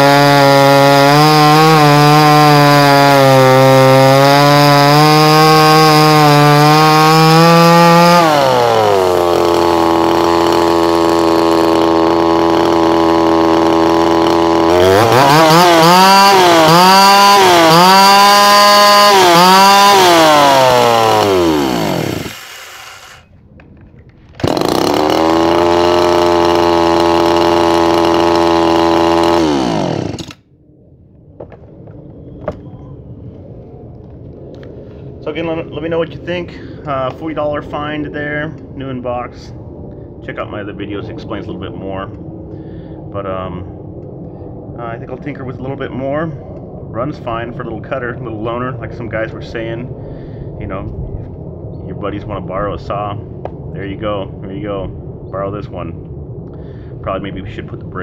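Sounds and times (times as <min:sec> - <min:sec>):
chainsaw revving and idling: 0:00.0 - 0:23.3, 0:24.4 - 0:30.4.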